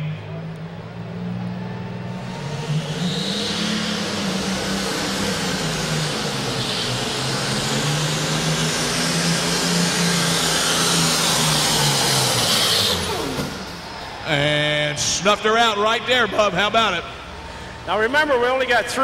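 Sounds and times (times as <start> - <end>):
tractor engine under load: 0.2 - 14.5.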